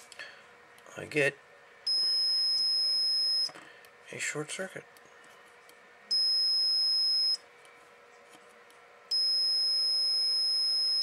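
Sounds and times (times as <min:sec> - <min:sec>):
multimeter continuity beep: 0:01.9 - 0:03.6, 0:06.1 - 0:07.4, 0:09.1 - 0:11.0.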